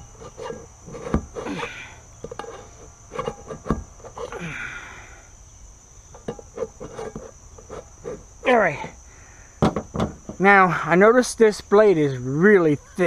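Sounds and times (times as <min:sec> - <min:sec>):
metal scraping and squealing: 0:00.0 - 0:04.4, 0:06.2 - 0:08.9
insects chirring: 0:00.0 - 0:13.0.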